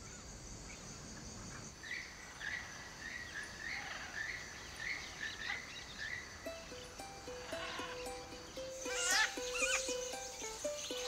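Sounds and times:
high insect drone: 0.0 - 11.0
short chirping call: 6.5 - 11.0.

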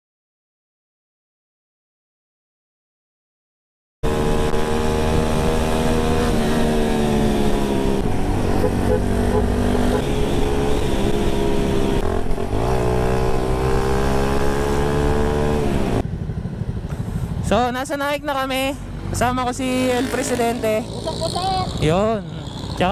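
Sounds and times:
motorcycle engine running: 4.0 - 17.9, 18.6 - 22.9.

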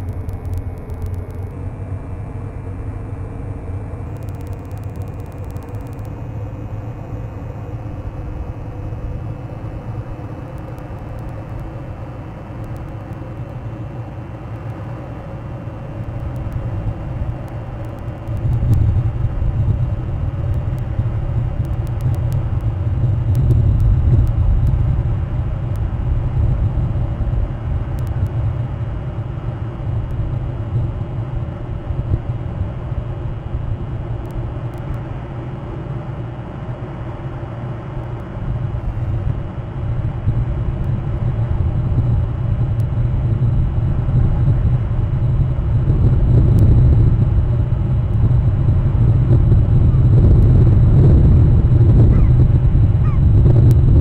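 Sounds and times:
wind buffeting microphone: 38.3 - 54.0.

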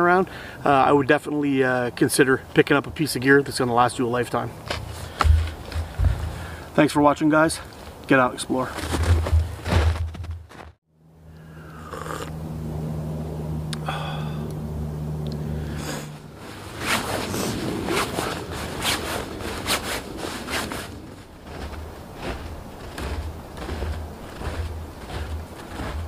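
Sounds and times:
steady low hum: 4.4 - 6.8, 8.8 - 26.0
fabric rustling in swishes: 16.3 - 26.0.

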